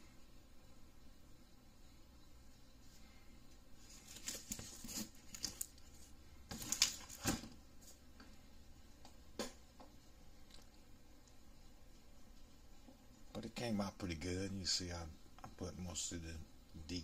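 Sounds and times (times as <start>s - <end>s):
paper rustling and scraping: 3.8s - 8.0s.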